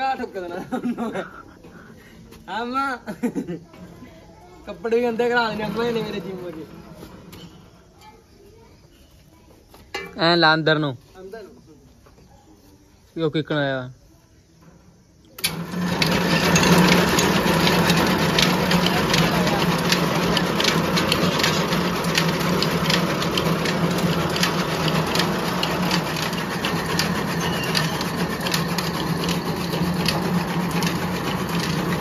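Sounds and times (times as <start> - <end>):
chaff cutter motor hum: 5.1 - 7.5, 15.4 - 32.0.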